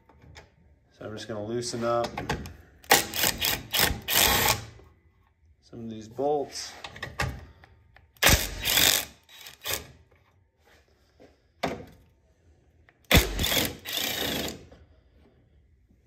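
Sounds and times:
power tool loosening bolts: 0:02.2 - 0:04.8, 0:08.2 - 0:09.9, 0:13.1 - 0:14.6.

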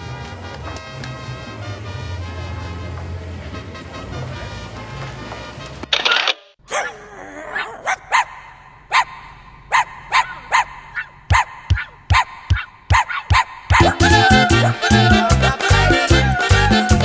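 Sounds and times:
puppy yapping: 0:06.7 - 0:15.3.

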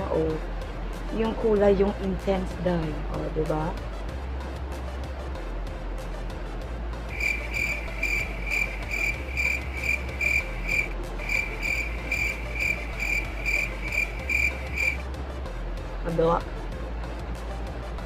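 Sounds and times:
insect chirping: 0:07.1 - 0:15.0.

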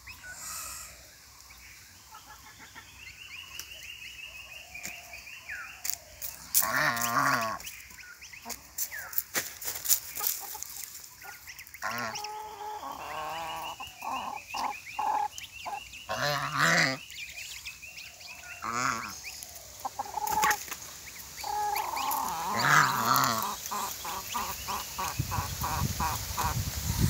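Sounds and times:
goslings peeping: 0:06.5 - 0:09.2, 0:10.2 - 0:27.0
geese honking: 0:11.2 - 0:17.0, 0:18.5 - 0:19.2, 0:19.8 - 0:20.8, 0:21.4 - 0:26.6.

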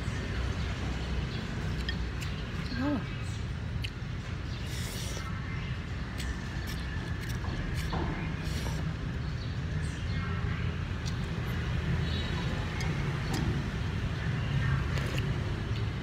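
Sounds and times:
street traffic rumble: 0:00.0 - 0:16.0
slurping noodles: 0:04.5 - 0:05.4.

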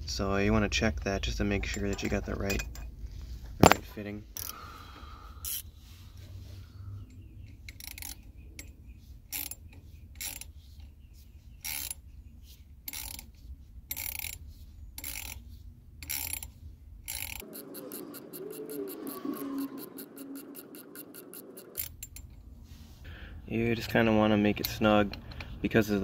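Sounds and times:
ratchet wrench clicking: 0:05.4 - 0:05.6, 0:07.6 - 0:08.7, 0:09.3 - 0:10.5, 0:11.6 - 0:12.0, 0:12.8 - 0:13.3, 0:13.9 - 0:14.4, 0:15.0 - 0:15.4, 0:16.0 - 0:18.9, 0:19.7 - 0:22.3.

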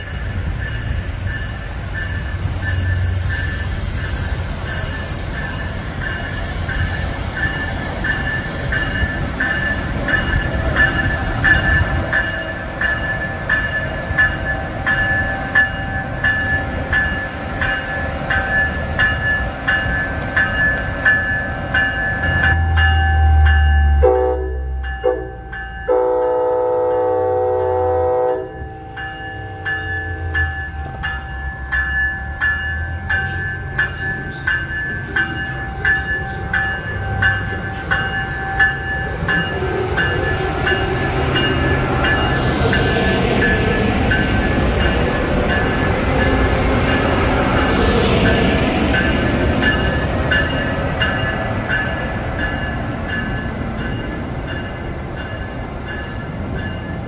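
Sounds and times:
train horn: 0:23.3 - 0:28.7.

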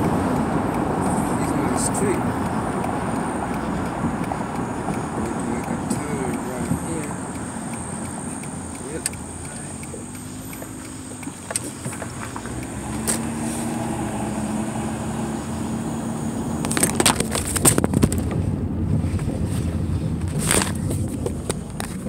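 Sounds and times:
sharp clicks and knocks: 0:00.0 - 0:13.3, 0:16.6 - 0:18.4
car engine hum: 0:00.0 - 0:22.0.

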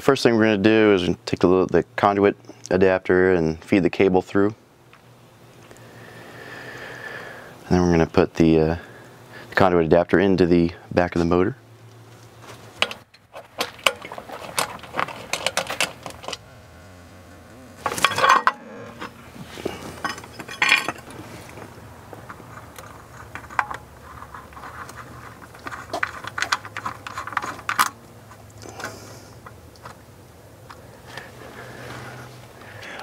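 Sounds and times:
low steady hum: 0:00.0 - 0:33.0
parts clattering: 0:12.3 - 0:17.0, 0:17.7 - 0:32.3
small parts clicking and clinking: 0:20.0 - 0:21.1, 0:22.2 - 0:30.0.

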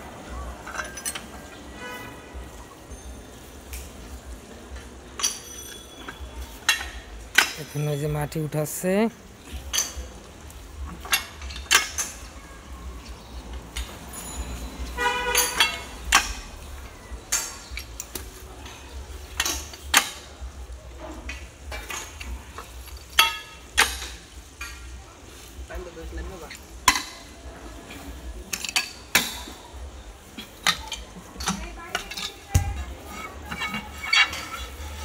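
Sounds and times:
pipe wrenches clinking on steel pipe: 0:00.6 - 0:01.6, 0:04.7 - 0:08.4, 0:09.7 - 0:10.1, 0:10.9 - 0:12.4, 0:13.0 - 0:20.4, 0:21.0 - 0:25.0, 0:26.4 - 0:27.3, 0:27.9 - 0:35.0.

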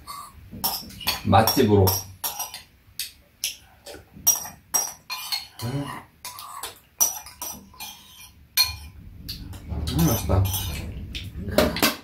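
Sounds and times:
spoons clinking against bowls: 0:00.6 - 0:03.6, 0:04.3 - 0:05.7, 0:06.3 - 0:09.0.

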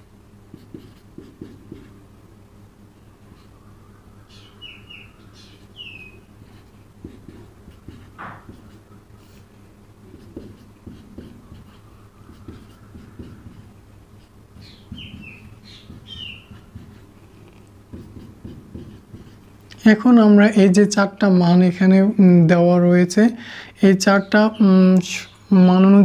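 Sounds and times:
low electrical hum: 0:00.0 - 0:26.0
marker on whiteboard: 0:00.5 - 0:02.0, 0:05.4 - 0:09.4, 0:10.1 - 0:19.4
small bird chirping: 0:04.0 - 0:06.3, 0:14.6 - 0:16.7.

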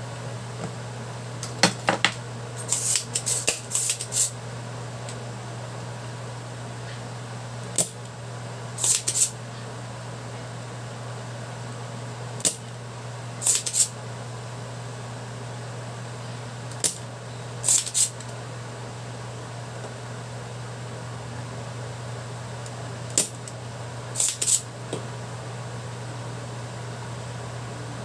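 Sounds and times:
steady low hum: 0:00.0 - 0:28.0
desoldering pump snapping: 0:08.8 - 0:09.3, 0:12.4 - 0:12.7, 0:24.2 - 0:25.0.

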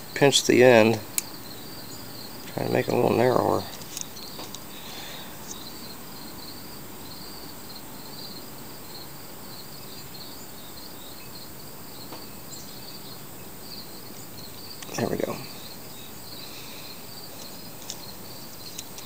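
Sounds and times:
insects trilling: 0:00.0 - 0:19.0
steady background hiss: 0:00.0 - 0:19.0.

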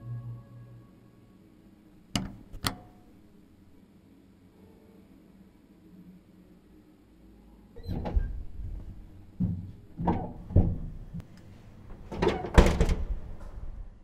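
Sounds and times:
metal lift door thumps and rattles: 0:07.8 - 0:11.2, 0:12.0 - 0:13.4
metal door banging: 0:12.1 - 0:13.2.

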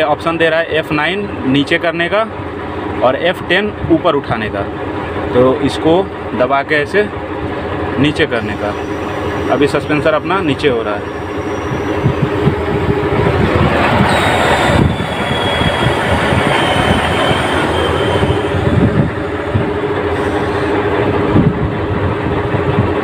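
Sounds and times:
crane machinery droning: 0:07.4 - 0:22.4.

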